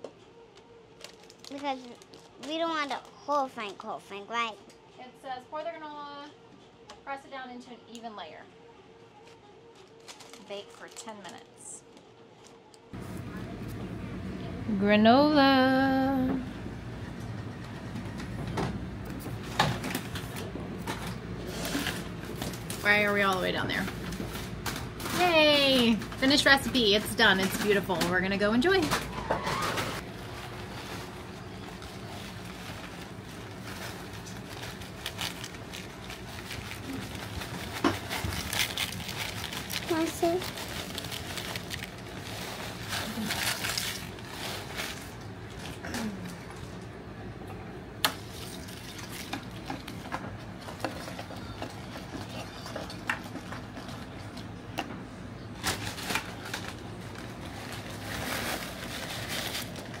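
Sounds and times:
plastic bag crinkling: 0.9s - 3.8s, 9.3s - 12.6s, 30.0s - 46.1s, 48.2s - 50.0s, 55.6s - 60.0s
steady low hum: 11.8s - 60.0s.

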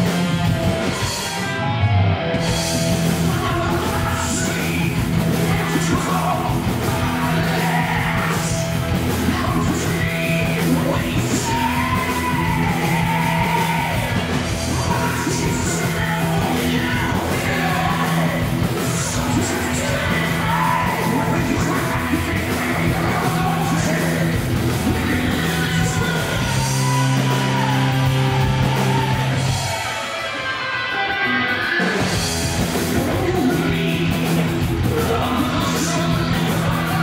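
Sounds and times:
electric guitars: 0.0s - 37.0s
singer yelling: 2.7s - 37.0s.

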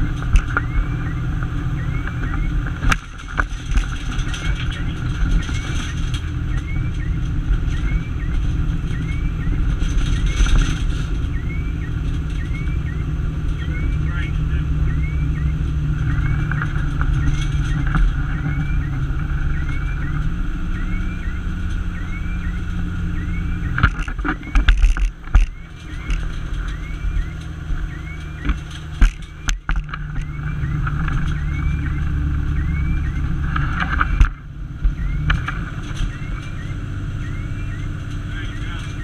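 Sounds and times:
diesel engine running: 0.0s - 39.0s
thumps: 23.6s - 32.1s.

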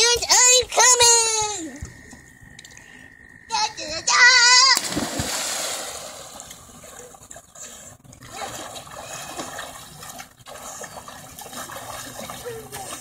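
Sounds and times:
child splashing into water: 4.6s - 7.4s, 8.2s - 13.0s
swimming splashes: 4.6s - 13.0s.

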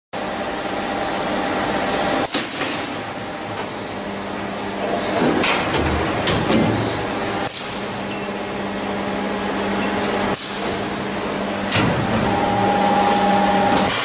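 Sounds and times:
machine hum: 0.2s - 14.0s
machine clunk: 11.7s - 12.4s.

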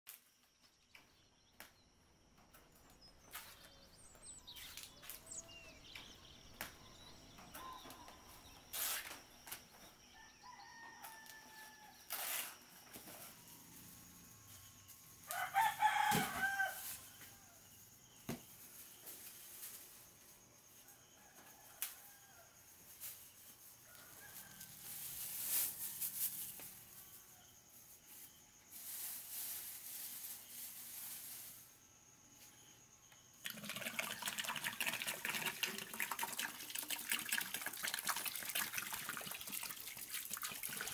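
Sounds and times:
rooster crowing: 10.1s - 12.2s, 15.2s - 17.6s, 23.9s - 25.1s.

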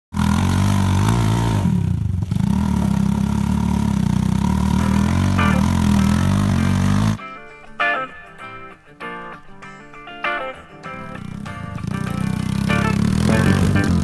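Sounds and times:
dirt bike engine revving: 0.1s - 7.2s, 11.0s - 14.0s.

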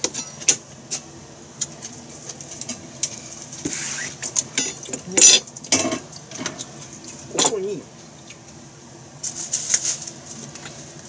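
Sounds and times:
brief scrape: 3.7s - 4.2s
utensils clattering: 4.3s - 7.7s.

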